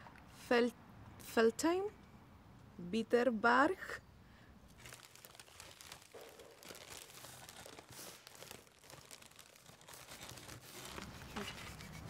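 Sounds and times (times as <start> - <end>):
faint crinkling and rustling: 4.7 - 12.0.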